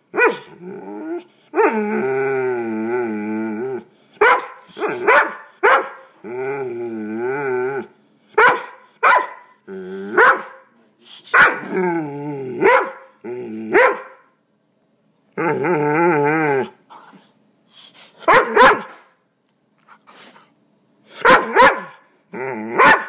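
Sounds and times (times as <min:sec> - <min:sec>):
dog barking: 0:00.1 - 0:00.5, 0:04.2 - 0:06.1, 0:08.4 - 0:09.6, 0:10.2 - 0:10.7, 0:11.3 - 0:11.7, 0:12.6 - 0:13.1, 0:13.8 - 0:14.3, 0:18.2 - 0:19.0, 0:21.2 - 0:22.0, 0:22.8 - 0:23.0
dog growling howls: 0:00.3 - 0:03.9, 0:06.2 - 0:07.9, 0:11.6 - 0:13.8, 0:15.4 - 0:16.8, 0:22.3 - 0:23.0.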